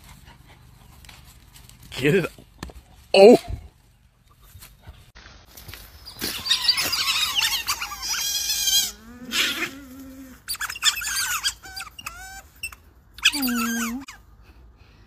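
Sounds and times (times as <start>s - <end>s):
otters squeaking and chirping: 5.9s - 9.8s, 10.4s - 14.2s.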